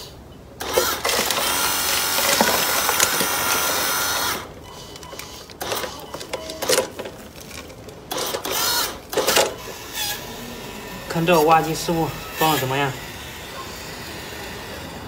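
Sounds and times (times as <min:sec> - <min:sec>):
electric motors and gears whirring: 0:00.0 - 0:15.0
soil falling into toy truck: 0:00.6 - 0:09.6.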